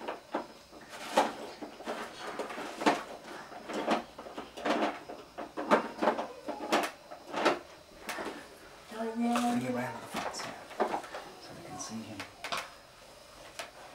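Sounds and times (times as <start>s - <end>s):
plastic toys knocking and clattering: 0.0s - 8.4s, 9.2s - 12.7s.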